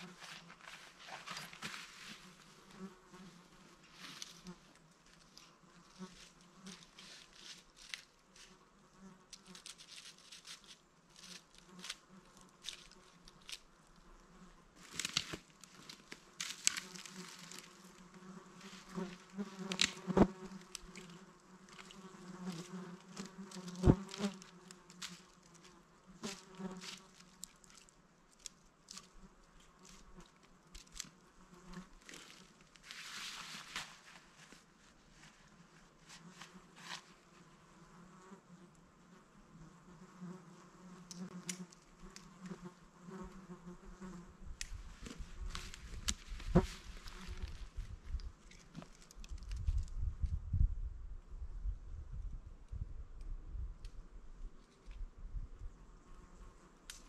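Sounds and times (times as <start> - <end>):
flying insect buzzing: 16.4 - 27.4.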